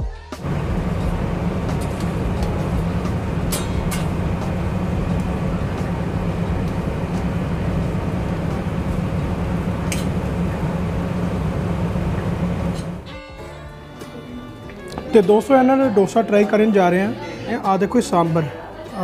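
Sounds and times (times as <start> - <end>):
low rumble of kitchen equipment: 0.4 - 13.1.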